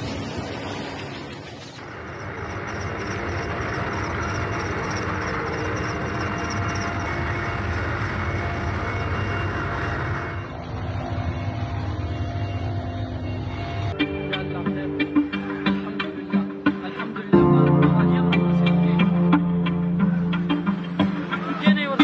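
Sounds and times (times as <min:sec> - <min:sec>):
helicopter engine and rotor: 0:00.0 - 0:10.6.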